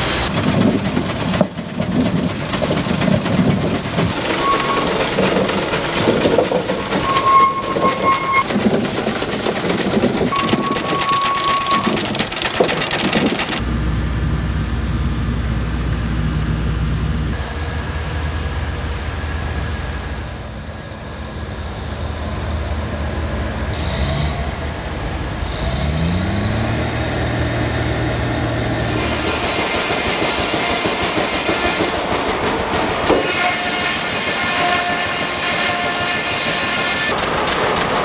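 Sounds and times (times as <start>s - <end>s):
sawmill machinery clattering: 0.0s - 13.6s, 28.8s - 38.0s
hissing steam: 2.4s - 10.4s, 28.8s - 37.2s
bulldozer diesel engine revving: 23.8s - 33.2s.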